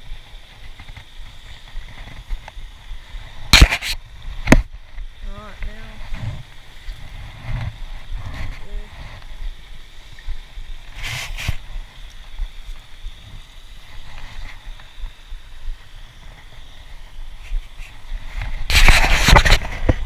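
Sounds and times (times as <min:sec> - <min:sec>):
camera handling noise: 0:03.5 - 0:04.6.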